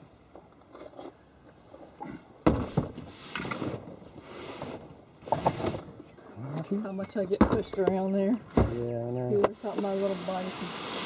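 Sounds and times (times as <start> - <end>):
cooler scraping: 2.6 - 6.2, 7.0 - 11.0.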